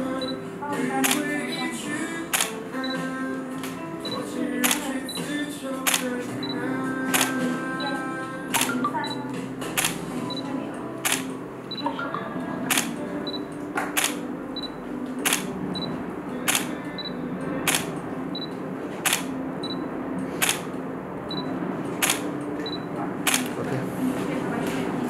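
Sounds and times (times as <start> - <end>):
soft background music: 0.0 - 25.0
camera shutter clicks: 1.0 - 1.3, 2.4 - 2.6, 4.6 - 4.9, 5.9 - 6.2, 7.1 - 7.5, 8.6 - 8.8, 9.8 - 10.0, 11.0 - 11.3, 12.7 - 13.0, 14.0 - 14.2, 15.2 - 15.5, 16.5 - 16.7, 17.7 - 17.9, 19.1 - 19.3, 20.4 - 20.7, 22.0 - 22.3, 23.3 - 23.6
short high beeps: 11.1 - 13.5.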